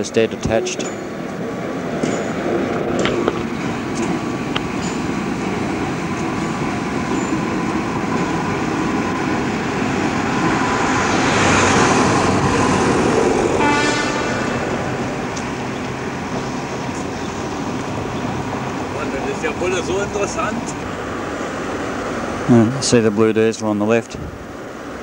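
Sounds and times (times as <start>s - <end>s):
locomotive moving on track: 0.0s - 25.0s
street traffic: 0.0s - 25.0s
car passing close: 7.8s - 23.0s.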